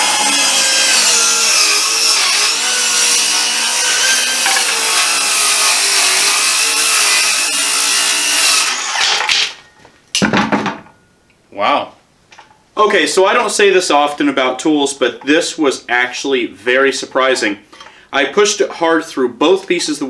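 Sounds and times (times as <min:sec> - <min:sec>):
circular saw cutting wood: 0:00.0 - 0:09.4.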